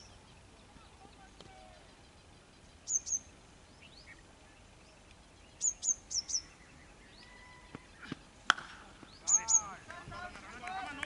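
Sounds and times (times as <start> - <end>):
birds chirping: 0.0 - 11.0
cricket bat striking ball: 8.5 - 8.8.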